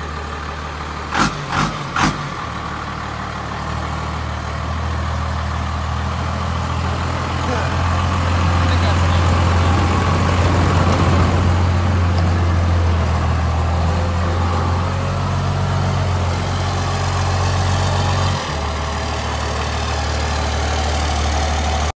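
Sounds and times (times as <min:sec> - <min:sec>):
diesel engine idling: 0:00.0 - 0:22.0.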